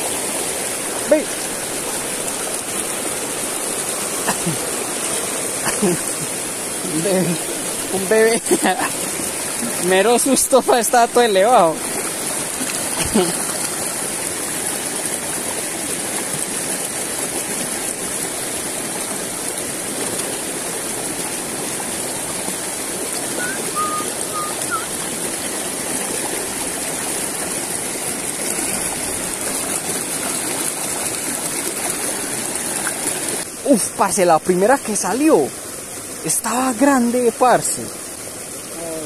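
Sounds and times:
water flowing over stones: 0.0 - 39.0.

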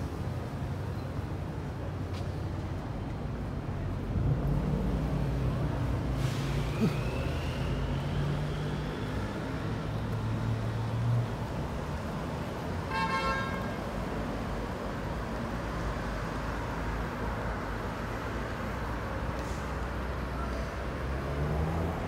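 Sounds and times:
city street traffic: 0.0 - 22.0
vehicle horn toot: 12.9 - 13.8.

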